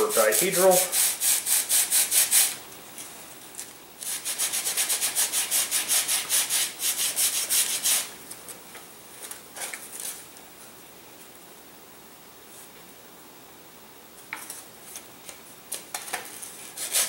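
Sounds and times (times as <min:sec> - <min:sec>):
wood sanding by hand: 0:00.0 - 0:02.6, 0:04.0 - 0:08.1, 0:16.8 - 0:17.0.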